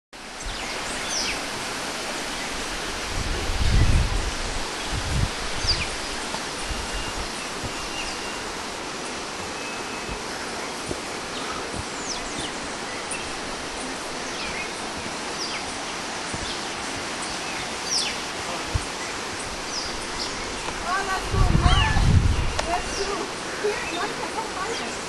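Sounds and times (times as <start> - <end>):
steady rushing hiss: 0.2 - 25.0.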